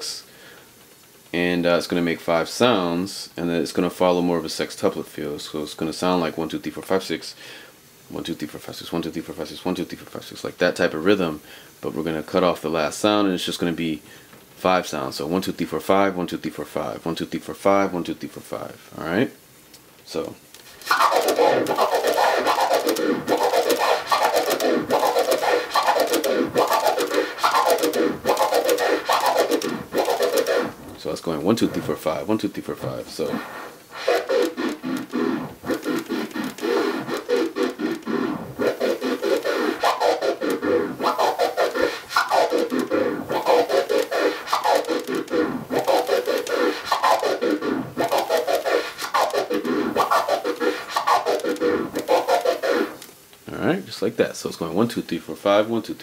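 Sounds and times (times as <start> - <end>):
turntable scratching: 20.2 - 53.1.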